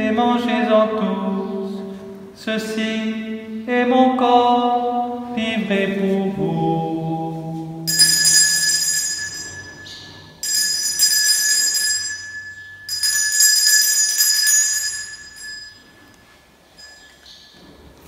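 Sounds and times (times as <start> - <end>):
altar bells jangling: 7.9 - 17.8.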